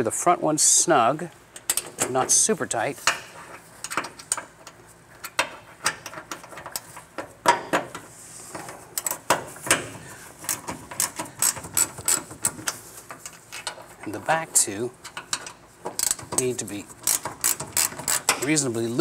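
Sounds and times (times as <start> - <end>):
ratchet wrench clicking: 10.5 - 12.6, 15.3 - 16.3, 17.0 - 18.4.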